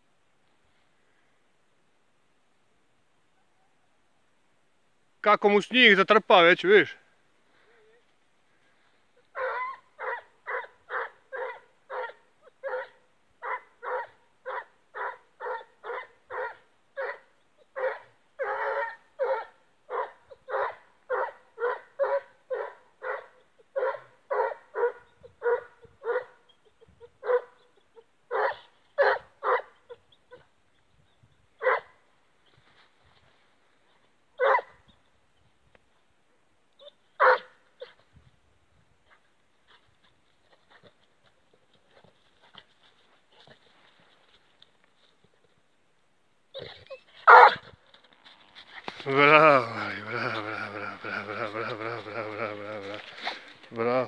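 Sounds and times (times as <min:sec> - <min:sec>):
hound baying barks: 0:09.3 - 0:26.6, 0:27.2 - 0:30.5, 0:31.6 - 0:32.0, 0:34.4 - 0:34.8, 0:36.8 - 0:38.0, 0:46.6 - 0:47.7.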